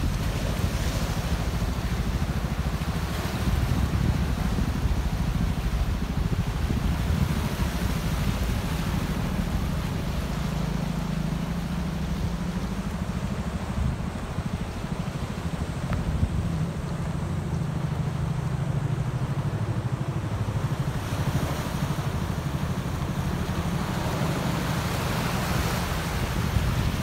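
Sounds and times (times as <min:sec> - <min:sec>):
surf washing over rocks: 0:00.0 - 0:27.0
wind buffeting microphone: 0:00.0 - 0:27.0.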